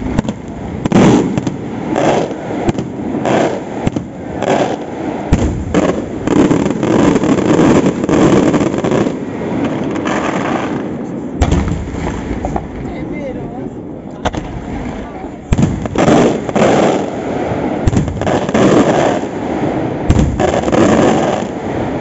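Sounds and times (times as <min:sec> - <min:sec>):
firework shells bursting: 0:00.0 - 0:12.9.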